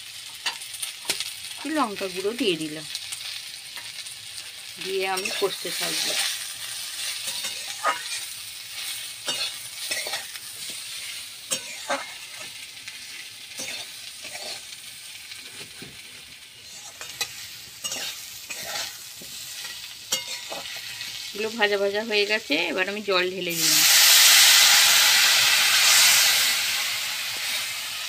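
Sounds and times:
vegetables sizzling in oil: 0:00.0 - 0:28.0
metal spatula scraping pan: 0:05.1 - 0:14.7, 0:16.6 - 0:21.2.

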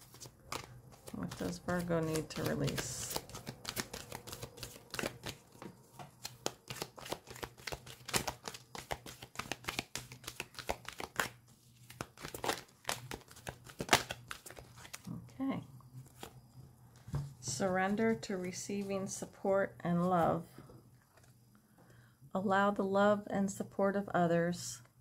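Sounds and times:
cards being shuffled: 0:00.0 - 0:15.1, 0:16.0 - 0:16.4.

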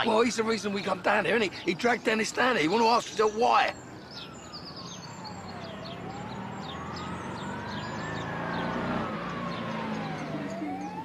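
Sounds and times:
emergency siren wailing: 0:00.0 - 0:01.8, 0:03.9 - 0:11.0.

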